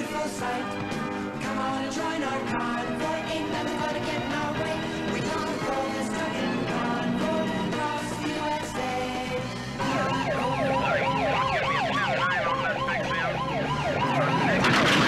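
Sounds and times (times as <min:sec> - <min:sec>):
film score music: 0:00.0 - 0:15.0
police siren yelping: 0:09.8 - 0:15.0.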